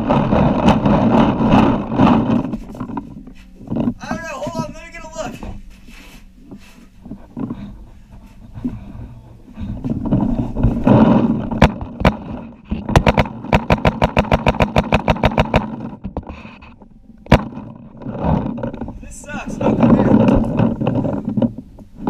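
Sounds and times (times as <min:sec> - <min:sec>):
rough rushing noise: 0:00.0 - 0:03.0.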